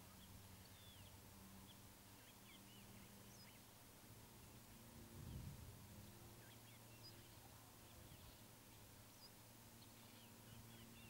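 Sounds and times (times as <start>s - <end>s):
small birds chirping: 0.0s - 3.8s, 6.0s - 11.0s
low steady hum: 0.0s - 11.0s.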